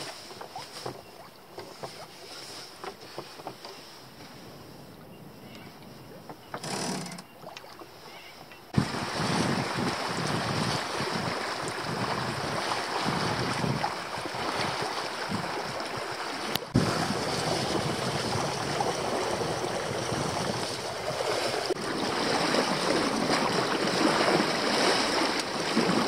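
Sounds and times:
water washing along hull: 0.0s - 4.8s, 5.6s - 26.0s
wind on microphone: 8.7s - 26.0s.

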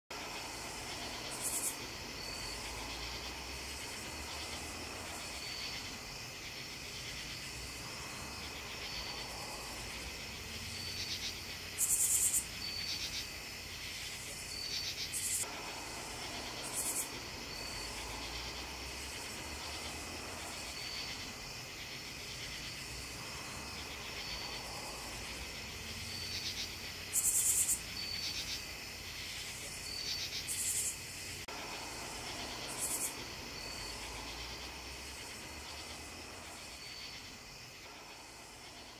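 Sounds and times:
crickets trilling: 0.1s - 38.9s
insect buzzes: 0.1s - 38.9s.

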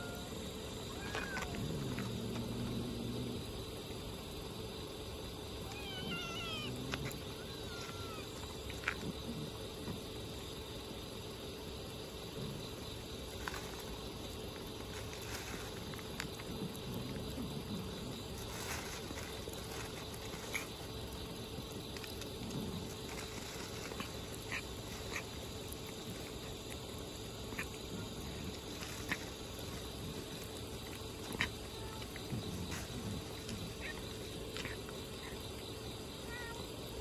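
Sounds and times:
steady background hiss: 0.0s - 37.0s
cat chewing crunchy food: 13.4s - 35.4s.

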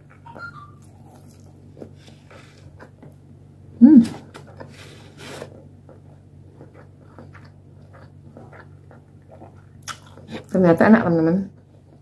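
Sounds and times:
steady low hum: 0.0s - 12.0s
soft wet chewing clicks: 5.5s - 12.0s.

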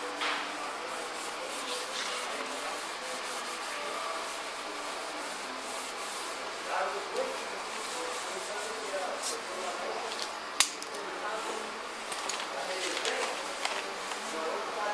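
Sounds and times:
scrape: 0.0s - 9.7s
cloth pad rubbing metal panel: 0.0s - 10.0s.

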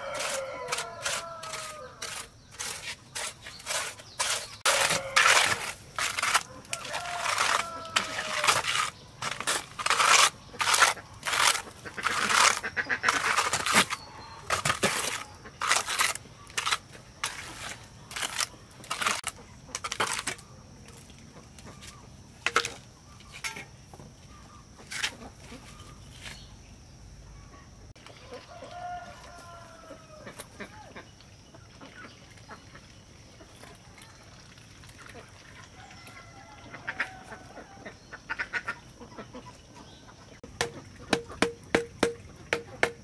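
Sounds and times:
float scraping wet concrete: 0.0s - 23.7s, 24.8s - 26.4s.

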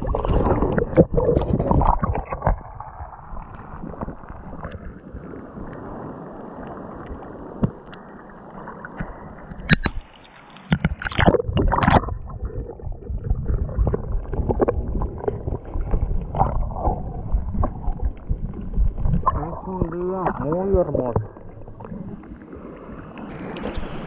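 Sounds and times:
muffled waves lapping: 0.0s - 24.0s
underwater gurgle and rumble: 0.0s - 24.0s
sharp water splashes: 9.6s - 22.3s.

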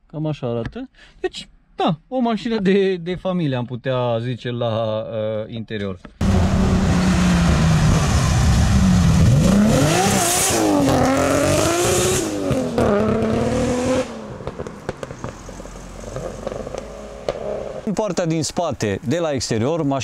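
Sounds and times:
car engine accelerating hard: 6.2s - 17.9s.

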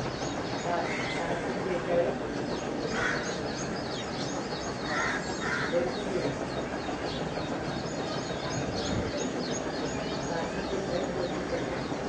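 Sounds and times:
birds chirping: 0.0s - 12.0s
harsh bird calls: 2.5s - 12.0s.

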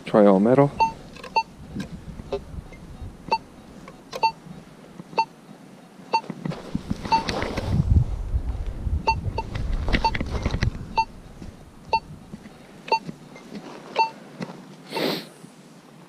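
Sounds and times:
low rumble: 6.7s - 12.4s
metal detector high beeps: 12.9s - 14.2s.

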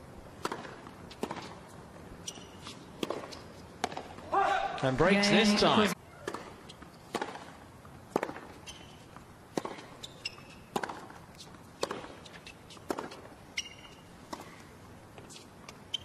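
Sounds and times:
tennis racket hitting ball: 0.4s - 1.7s, 2.3s - 4.8s, 6.2s - 11.2s, 11.8s - 14.6s
shoes squeaking on hard court: 0.6s - 4.2s, 8.2s - 14.6s, 15.2s - 16.0s.

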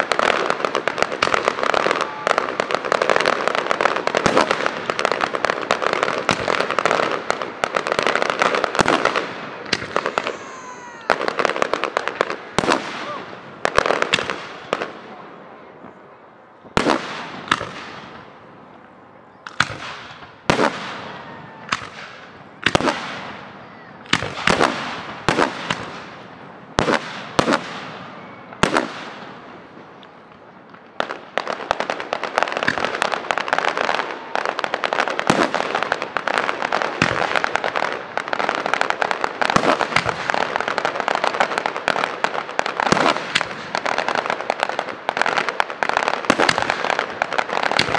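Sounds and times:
rapid crackling pops: 34.6s - 47.9s.

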